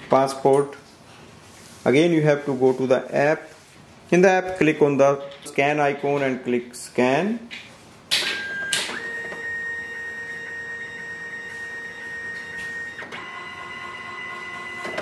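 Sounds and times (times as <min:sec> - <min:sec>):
scanner motor whining: 0:08.5 - 0:15.0.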